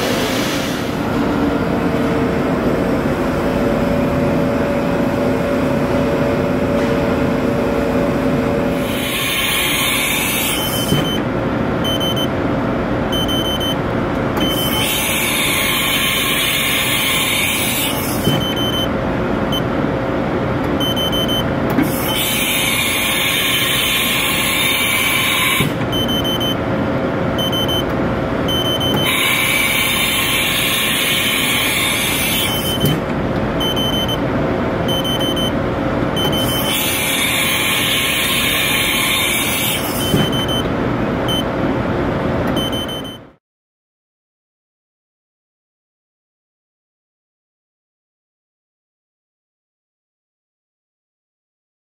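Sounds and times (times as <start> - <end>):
short beep: 10.6 - 11.2, 11.8 - 12.3, 13.1 - 13.8, 14.4 - 14.8, 18.4 - 18.9, 20.8 - 21.4, 25.9 - 26.6, 27.4 - 27.9, 28.5 - 29.2, 33.6 - 34.2, 34.9 - 35.6, 40.2 - 40.7, 41.3 - 41.5, 42.6 - 43.4.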